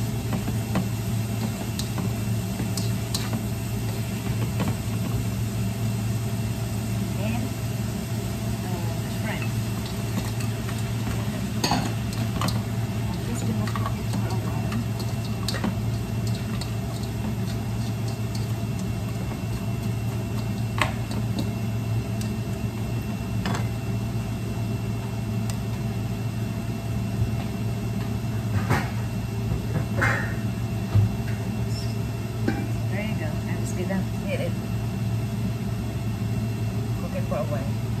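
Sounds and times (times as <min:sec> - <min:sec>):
range hood fan humming: 0:00.0 - 0:38.0.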